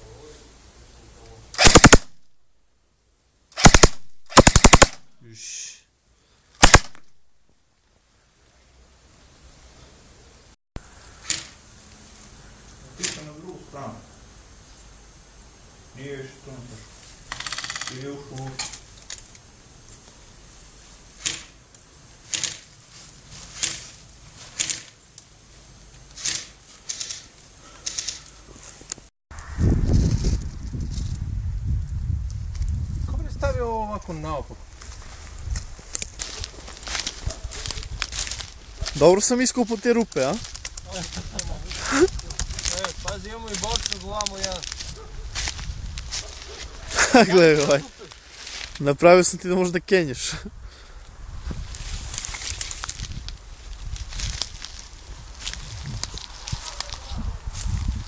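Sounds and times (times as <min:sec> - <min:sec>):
airsoft rifle full-auto bursts: 0:01.6 - 0:02.2, 0:03.6 - 0:05.0, 0:06.6 - 0:07.0, 0:17.3 - 0:17.9.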